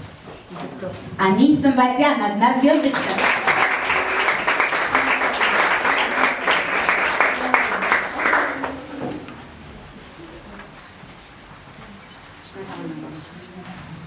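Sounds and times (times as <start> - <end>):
audience applauding: 2.6 - 9.4.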